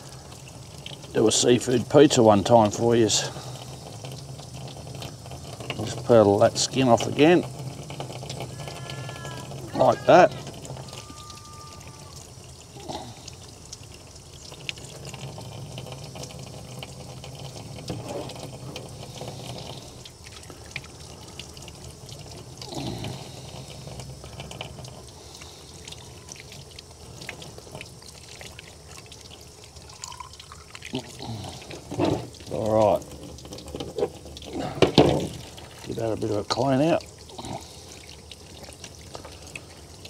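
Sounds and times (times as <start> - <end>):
hose water splashing: 0.0 - 40.0.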